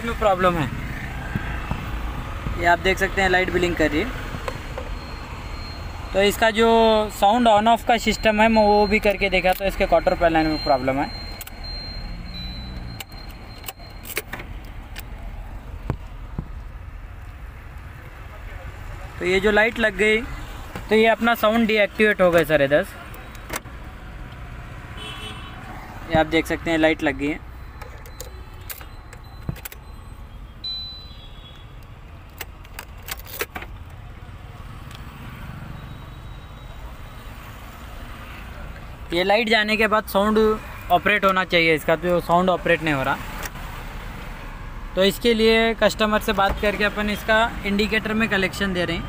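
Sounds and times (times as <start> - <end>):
car keys jangling: 12.8 - 15.2, 27.8 - 29.8, 31.8 - 33.9.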